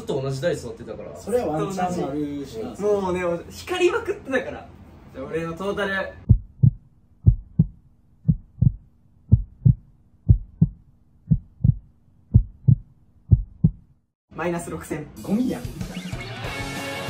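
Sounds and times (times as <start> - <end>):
heartbeat double beats: 6.3 - 14.0.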